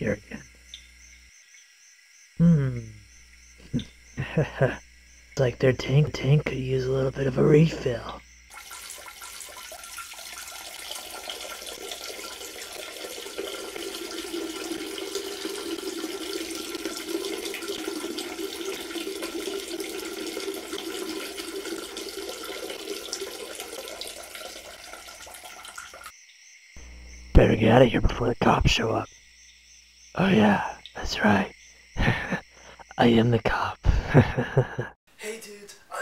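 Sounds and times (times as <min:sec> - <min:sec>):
water running into a tank: 0:03.4 - 0:26.1.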